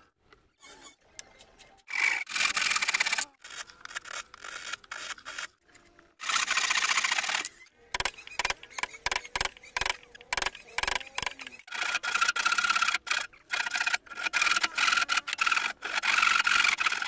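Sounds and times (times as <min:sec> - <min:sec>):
handsaw cutting wood: 0:01.9 - 0:05.6, 0:06.2 - 0:17.0
rasping strokes on wood: 0:08.0 - 0:17.0.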